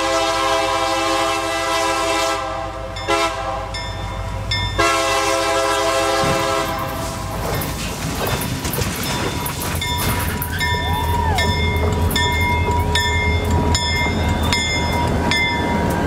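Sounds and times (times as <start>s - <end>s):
locomotive air horn: 0.0s - 3.8s, 4.8s - 7.3s
locomotive engine rumble: 0.0s - 16.0s.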